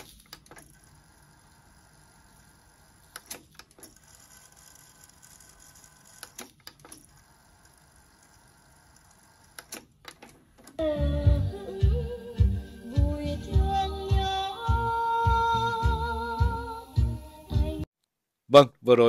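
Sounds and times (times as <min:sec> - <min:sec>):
tape mechanism whirring: 0:00.0 - 0:10.8.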